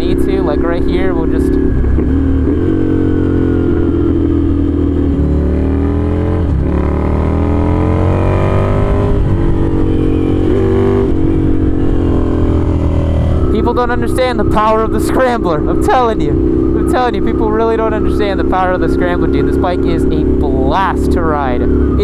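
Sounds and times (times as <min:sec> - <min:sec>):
motorcycle engine revving through gears: 0:00.0 - 0:22.0.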